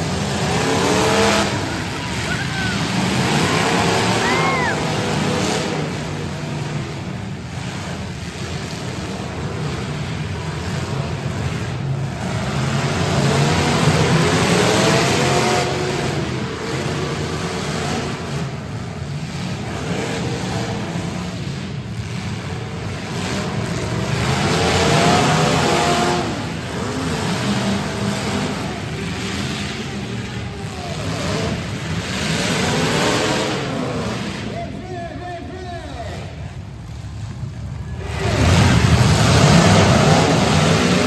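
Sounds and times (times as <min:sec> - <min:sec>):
car engines revving hard: 0:00.0 - 0:41.0.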